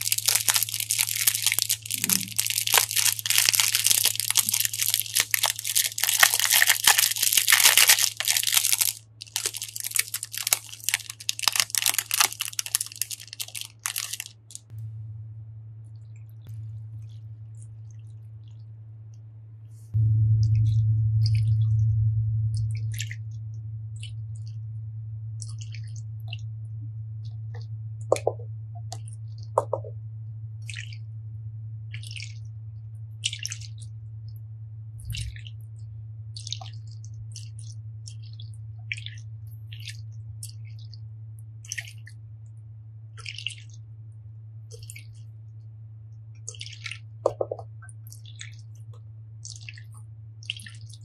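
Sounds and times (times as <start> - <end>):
wet water beads squelching: 0.0 - 14.7, 28.1 - 29.9, 33.2 - 33.9, 36.4 - 41.0, 41.6 - 42.2, 43.2 - 43.8, 44.7 - 45.3, 46.4 - 51.0
low hum: 0.0 - 51.0.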